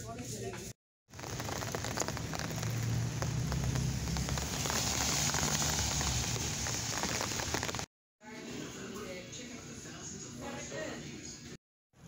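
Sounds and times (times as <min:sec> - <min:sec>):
rain on wet pavement: 0:01.1 - 0:07.9.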